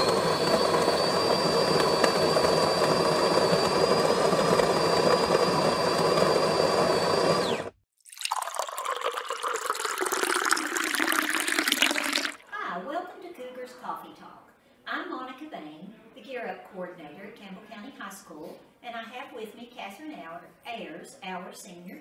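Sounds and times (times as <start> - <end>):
coffee pouring: 8.0 - 12.4.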